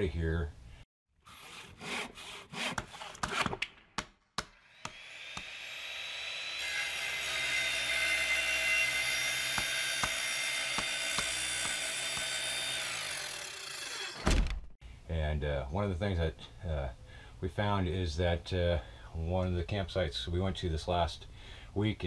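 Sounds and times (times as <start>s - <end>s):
saw rasping strokes: 1.2s - 3.6s, 4.5s - 14.2s
steady sawing noise: 4.5s - 14.2s.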